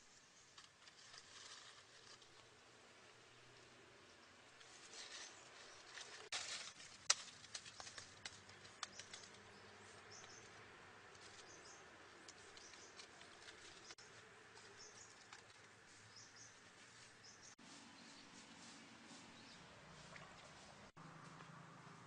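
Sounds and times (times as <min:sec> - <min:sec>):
dry leaves rustling: 0:00.4 - 0:03.8, 0:04.4 - 0:22.0
twigs snapping: 0:04.9 - 0:14.0.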